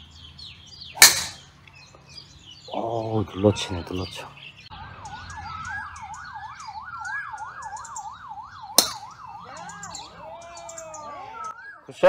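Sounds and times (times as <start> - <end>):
golf club striking ball: 1.0 - 1.5, 8.7 - 9.2
distant siren yelping: 2.7 - 12.0.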